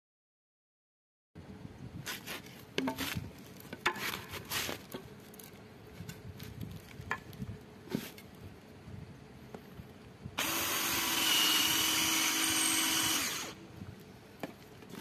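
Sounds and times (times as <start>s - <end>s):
bamboo poles knocking and scraping: 2.1s - 8.3s, 14.4s - 15.0s.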